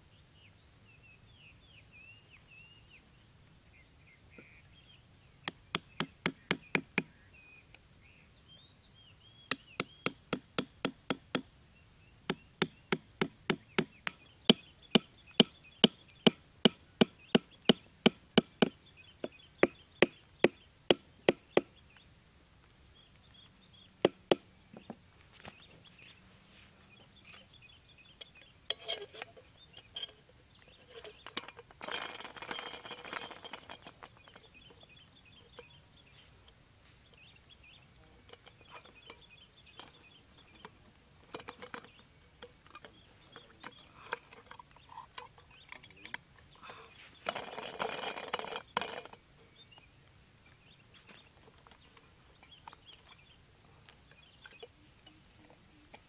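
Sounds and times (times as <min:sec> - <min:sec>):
hammer striking wooden stakes: 0:05.4 - 0:07.2, 0:09.5 - 0:11.5, 0:12.3 - 0:21.7, 0:24.0 - 0:24.9.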